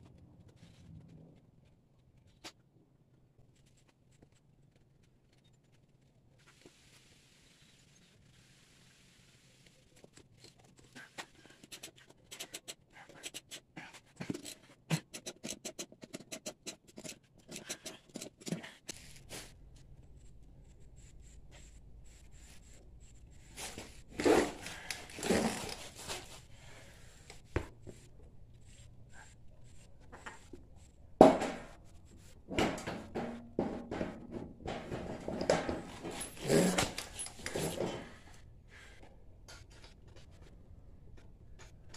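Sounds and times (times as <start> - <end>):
wheel knocks and scrapes: 23.6 - 26.4, 31.2 - 38.2.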